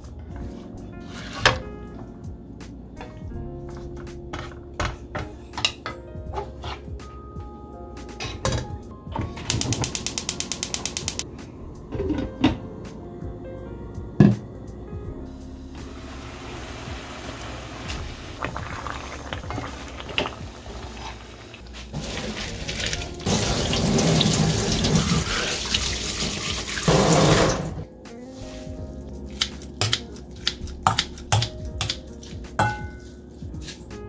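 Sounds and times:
tap running water into sink: 22.0 - 27.7.

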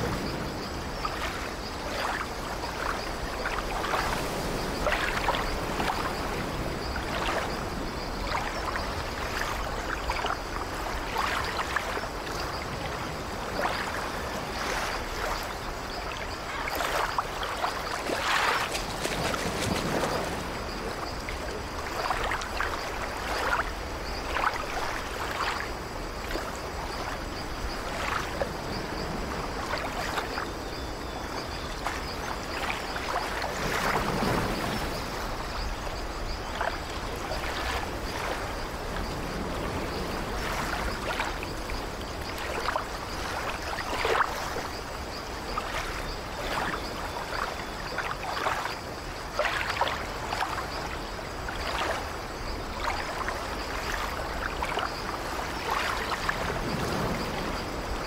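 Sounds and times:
ocean surf breaking on rocks: 33.9 - 35.4, 56.4 - 58.0.

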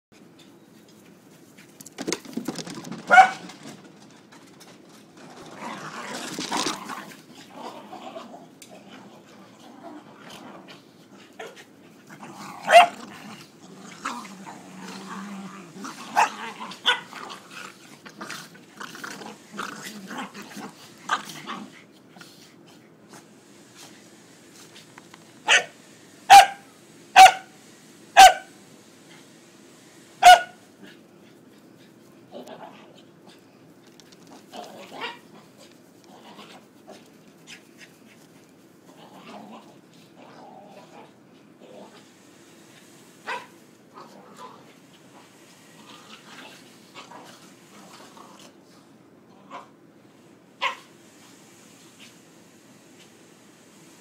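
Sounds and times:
dog barking: 3.1 - 3.5, 12.7 - 13.0, 25.5 - 25.7, 26.3 - 26.6, 27.2 - 27.5, 28.2 - 28.5, 30.2 - 30.6, 50.6 - 50.9
dogs growling: 5.2 - 22.8, 30.8 - 38.2, 38.9 - 42.2, 43.3 - 49.8.

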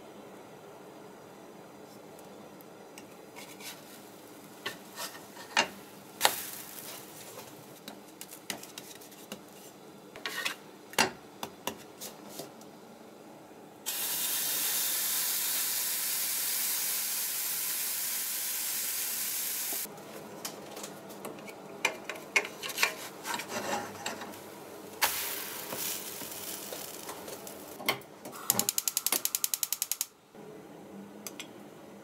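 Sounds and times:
spatula scraping a frying pan: 3.4 - 4.0, 4.6 - 5.7, 8.6 - 10.6, 22.5 - 24.4
batter sizzling in a pan: 3.4 - 8.7, 13.9 - 19.9, 25.0 - 27.8.

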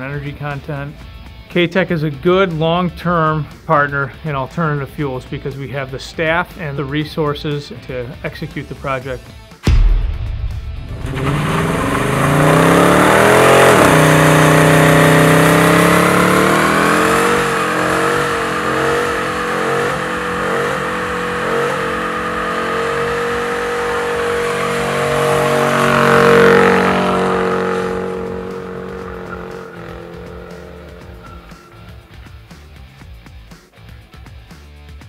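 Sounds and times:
car engine revving hard: 10.8 - 32.6.

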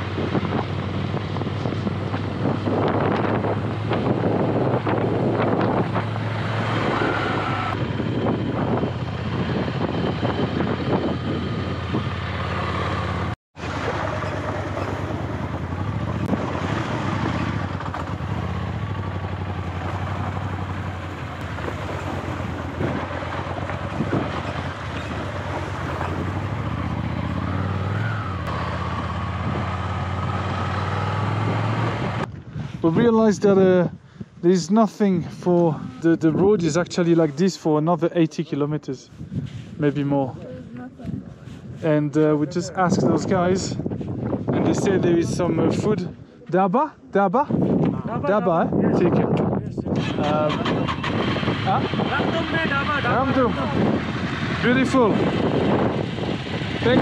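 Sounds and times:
wind buffeting microphone: 0.0 - 13.4, 14.6 - 37.3, 39.1 - 46.4, 47.3 - 57.0
motorcycle engine running: 0.0 - 32.5, 50.0 - 57.0.

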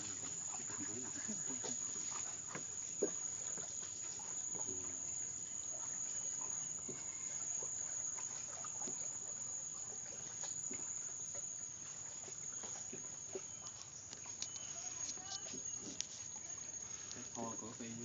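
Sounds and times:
insects buzzing: 0.0 - 18.0
faint ticks: 12.3 - 17.6.

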